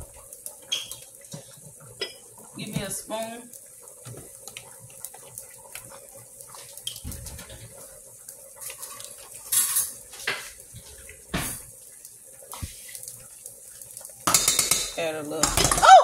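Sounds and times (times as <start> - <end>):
utensils and containers clinking: 9.5 - 10.0, 14.3 - 16.0.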